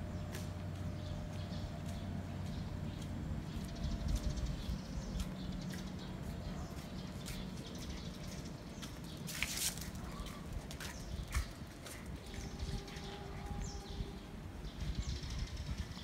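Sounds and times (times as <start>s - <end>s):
footsteps on pavement: 0.0s - 16.0s
footstep scuff: 8.8s - 12.1s.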